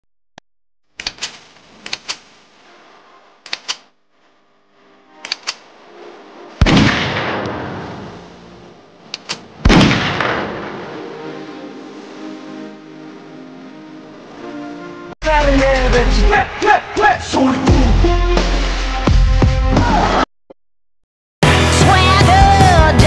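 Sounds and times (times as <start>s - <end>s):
sharp clicks in pairs: 3.5s - 3.9s, 5.2s - 5.6s, 9.1s - 9.4s
loud booming impacts: 9.6s - 10.9s.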